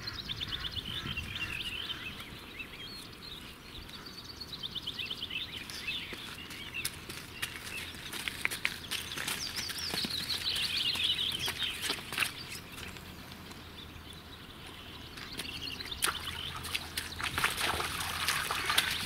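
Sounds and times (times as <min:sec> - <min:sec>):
songbird trilling: 0:00.0 - 0:08.1, 0:09.0 - 0:13.0, 0:13.6 - 0:19.0
hooves splashing through mud: 0:04.9 - 0:19.0.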